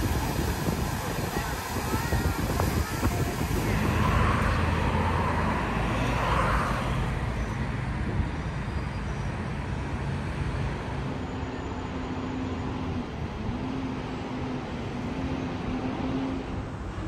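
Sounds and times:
traffic hum: 0:00.0 - 0:17.0
motor vehicle passing: 0:02.0 - 0:07.9.

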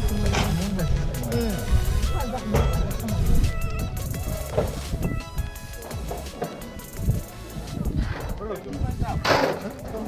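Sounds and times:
music with busy percussion: 0:00.0 - 0:10.0.

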